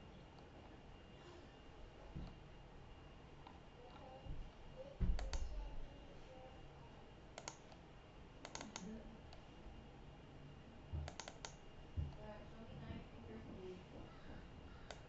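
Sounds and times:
quick sharp clicks: 8.4 - 8.9, 11.1 - 11.6.

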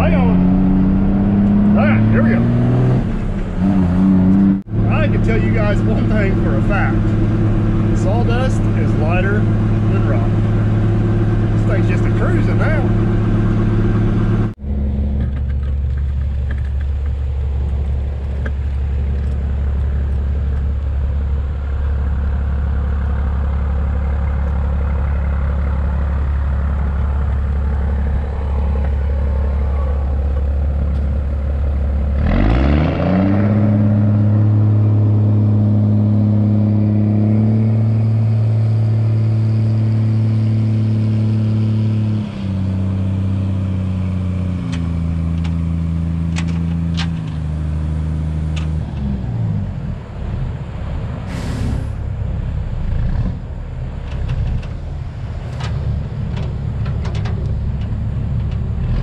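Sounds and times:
truck engine idling and revving: 0.0 - 59.0.

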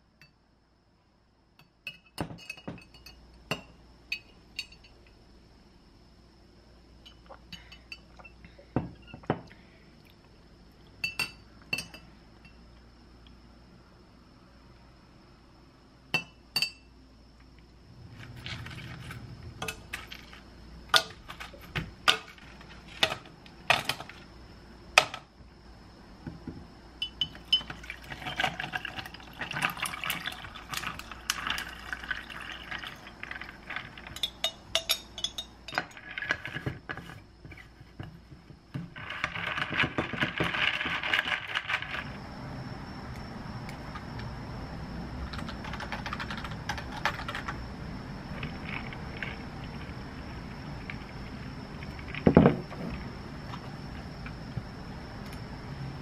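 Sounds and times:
ice clinking against glass: 1.6 - 5.0, 11.0 - 12.6, 27.0 - 36.5
spoon clinking against glass jar: 1.6 - 5.0, 11.0 - 12.6, 16.2 - 16.9, 27.0 - 29.1, 34.0 - 36.5
tea pouring over ice: 27.5 - 34.2.

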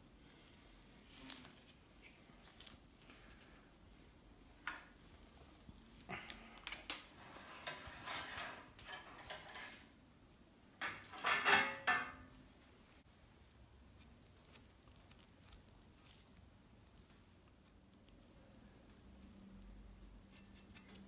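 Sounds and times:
metal tools clinking and scraping: 7.2 - 9.9, 10.8 - 12.3.

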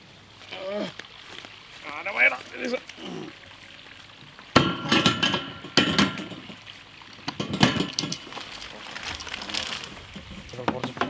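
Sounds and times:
metal clanking and knocking: 4.6 - 6.6, 7.3 - 8.2.

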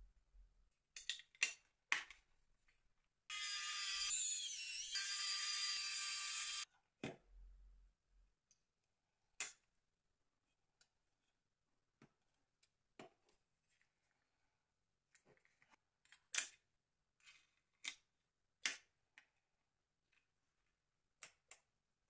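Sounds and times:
electric screwdriver motor whining: 3.3 - 6.6.

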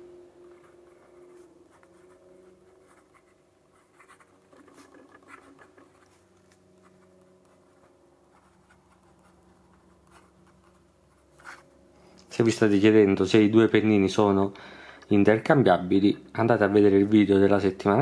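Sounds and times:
fountain pen scratching on paper: 0.5 - 11.7.

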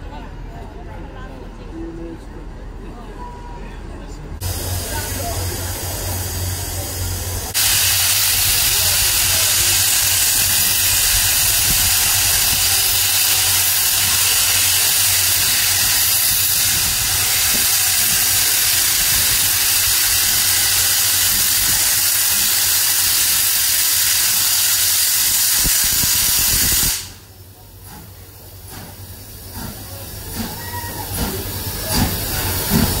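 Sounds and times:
steam locomotive hissing: 4.4 - 33.0.

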